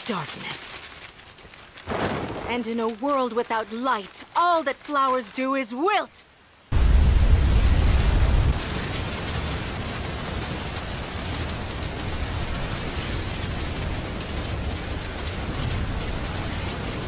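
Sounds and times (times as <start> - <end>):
steady rushing hiss: 0.0 - 17.0
low rumble: 6.7 - 17.0.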